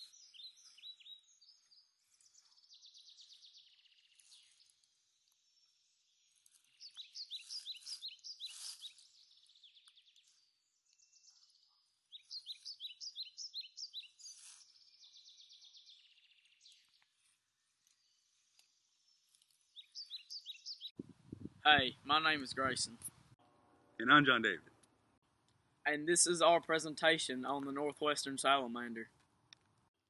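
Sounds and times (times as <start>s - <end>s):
songbird chirping: 0.0s - 21.0s
faint bird twittering: 5.6s - 17.0s.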